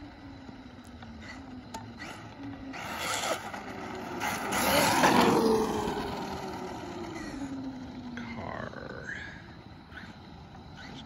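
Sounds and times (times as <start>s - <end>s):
toy truck motor whine: 0.0s - 8.2s.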